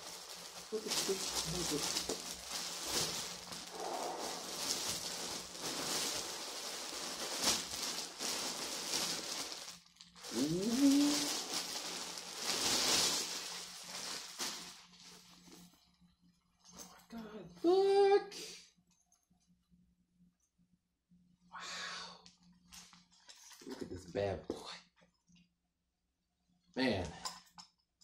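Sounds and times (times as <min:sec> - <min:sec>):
plastic bag crinkling: 0:00.0 - 0:15.7
person exclaiming: 0:10.3 - 0:11.4, 0:17.6 - 0:18.5.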